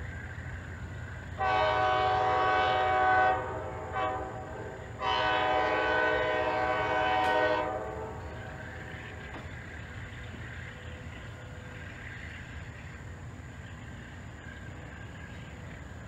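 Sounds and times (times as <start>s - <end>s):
locomotive engine rumble: 0.0s - 16.0s
locomotive air horn blasts: 1.4s - 8.6s.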